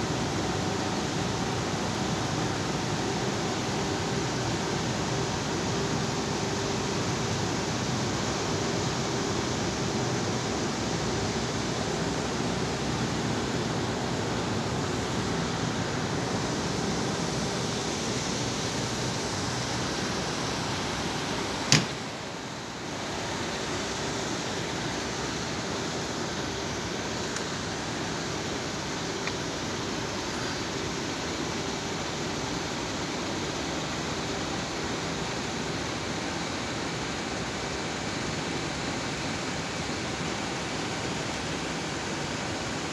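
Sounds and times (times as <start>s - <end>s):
large fans whirring: 0.0s - 42.9s
sharp click: 21.7s - 22.0s.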